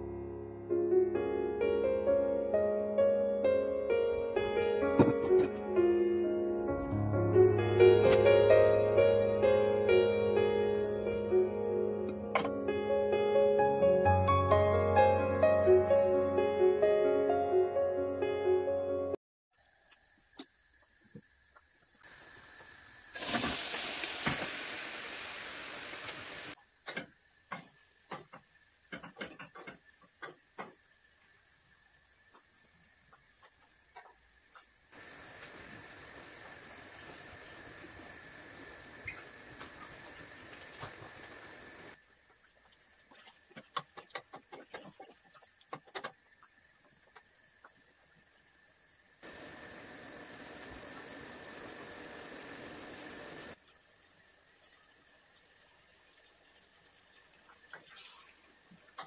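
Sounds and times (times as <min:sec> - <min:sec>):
wooden spoon knocking on pan: 0:05.0 - 0:05.6
steady hiss: 0:19.6 - 0:26.6, 0:30.2 - 0:42.1, 0:46.2 - 0:59.0
hot pan sizzling: 0:22.0 - 0:26.6, 0:34.9 - 0:42.0, 0:49.2 - 0:53.8.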